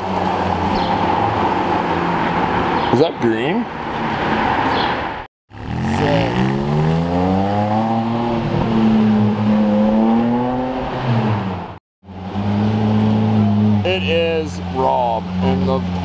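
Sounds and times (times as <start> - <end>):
sports car engine accelerating: 5.5 - 14.0.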